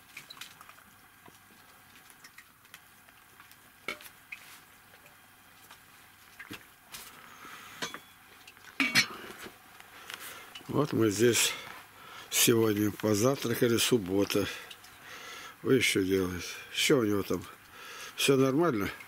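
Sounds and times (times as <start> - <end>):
small clicks and rustles: 0.0 - 11.0.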